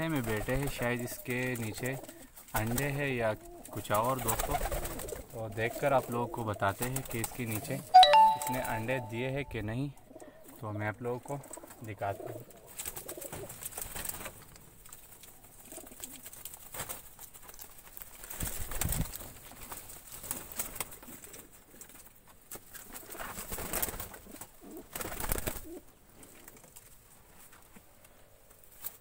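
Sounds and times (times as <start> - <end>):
pigeons cooing: 0.0 - 7.7, 11.4 - 13.6, 24.0 - 26.6.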